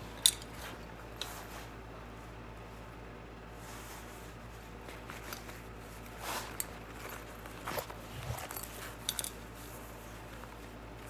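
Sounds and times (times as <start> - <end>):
hands clicking and rustling on bike: 0.0 - 1.8, 4.8 - 11.0.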